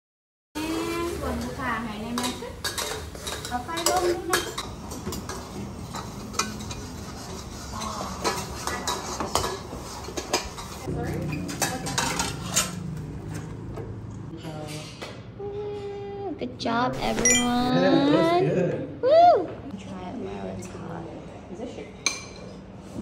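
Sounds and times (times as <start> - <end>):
metal spatulas scraping woks: 5.2 - 12.8.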